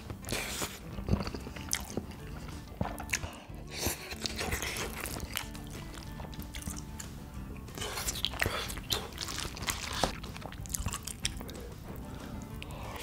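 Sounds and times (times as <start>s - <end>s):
background music: 0.0s - 13.0s
man chewing and slurping noodles: 0.0s - 13.0s.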